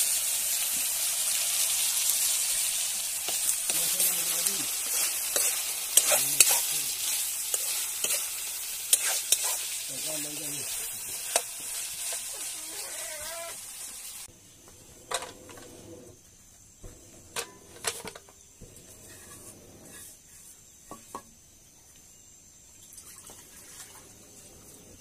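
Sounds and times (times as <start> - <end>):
food frying sizzle: 0.0 - 14.3
water poured and swished by hand: 22.9 - 24.4.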